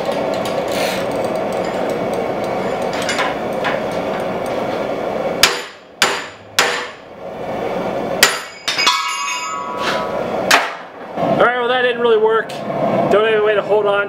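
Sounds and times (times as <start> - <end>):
hammer striking hot metal: 5.4 - 7.1, 8.2 - 10.9
metallic ring: 8.3 - 10.3.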